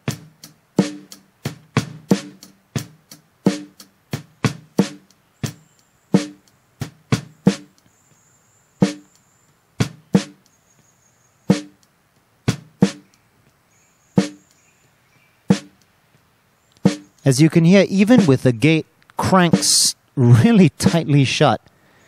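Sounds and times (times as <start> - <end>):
snare drum hits: 0.0 - 5.6, 6.2 - 7.8, 8.8 - 9.1, 11.5 - 11.8, 12.5 - 13.0, 14.2 - 14.4, 15.5 - 15.8, 16.8 - 17.2, 19.4 - 19.9
faint hi-hat: 0.0 - 21.8.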